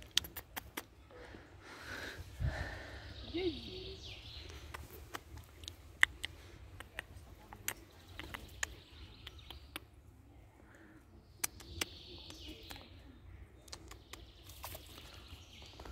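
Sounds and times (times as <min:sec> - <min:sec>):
squirrel rustling dry leaves: 0:14.4 - 0:15.9.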